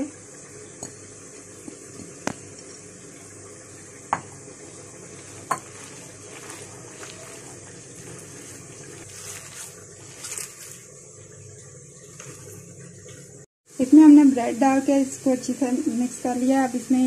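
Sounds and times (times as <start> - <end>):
soft squishing of kneaded mince: 4.7 - 10.8.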